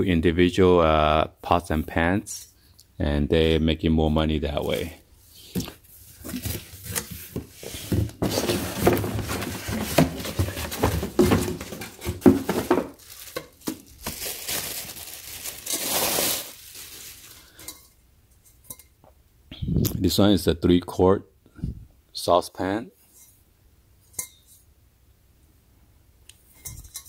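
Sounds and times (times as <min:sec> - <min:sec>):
cardboard packaging rustling: 0:05.6 - 0:17.6
plastic wrap crinkling: 0:07.6 - 0:17.6
metal pots knocking and clinking: 0:08.2 - 0:13.8, 0:26.6 - 0:27.0.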